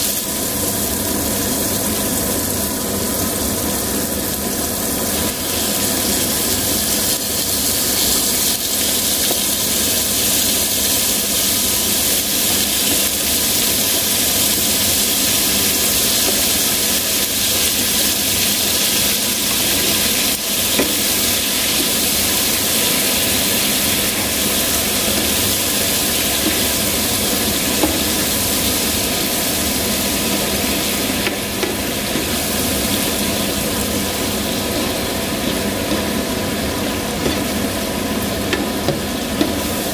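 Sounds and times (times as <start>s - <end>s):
squid sizzling in frying pan: 0.0s - 39.9s
spatula stirring in pan: 14.5s - 37.7s
utensil tapping on pan: 20.7s - 21.2s, 27.7s - 28.2s, 31.2s - 32.4s, 37.2s - 37.6s, 38.5s - 39.6s.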